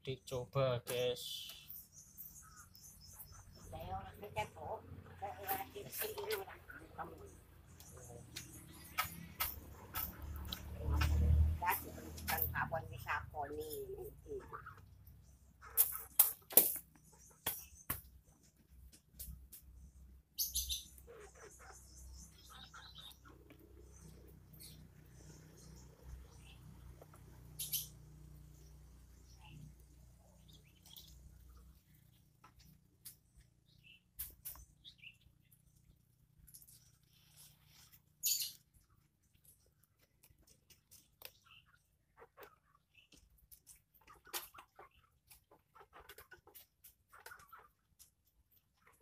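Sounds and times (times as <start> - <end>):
high chirping: 1.0 - 5.4, 20.4 - 26.8, 27.4 - 32.2, 36.6 - 38.7
faint clicks and scrapes: 35.7 - 49.0.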